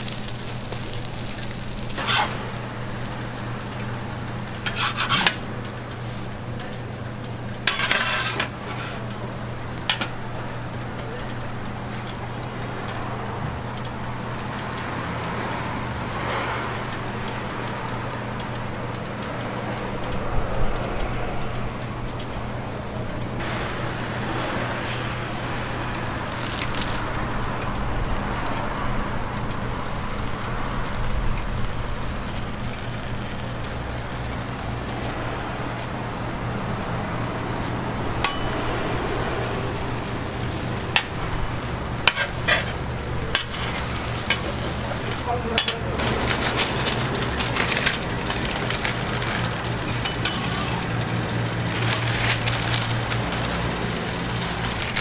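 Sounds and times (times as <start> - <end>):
faint sizzling: 0.0 - 14.8, 29.4 - 55.0
hot griddle hiss and hum: 0.0 - 55.0.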